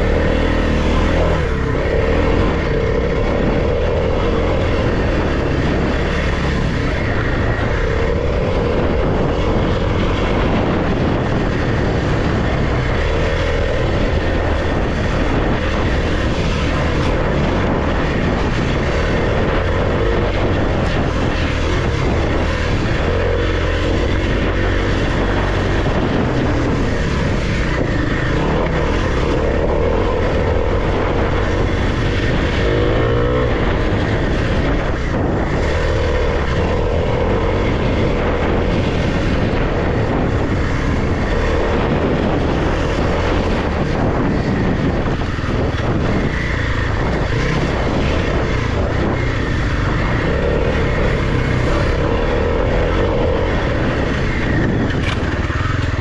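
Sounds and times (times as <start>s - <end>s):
motorcycle engine revving: 0.0s - 56.0s
rush of noise: 0.0s - 56.0s.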